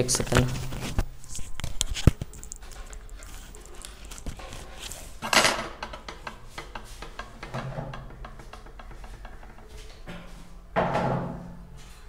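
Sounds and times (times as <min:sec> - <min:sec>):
rustling scrape: 0:00.2 - 0:05.2.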